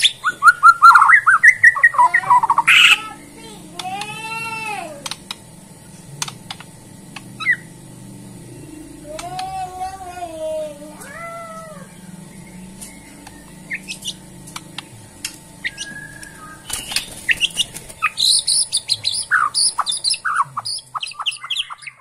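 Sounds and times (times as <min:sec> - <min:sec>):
bird singing chirps and whistles: 0:00.0 - 0:03.3, 0:07.4 - 0:07.7, 0:11.8 - 0:14.2, 0:15.6 - 0:22.0.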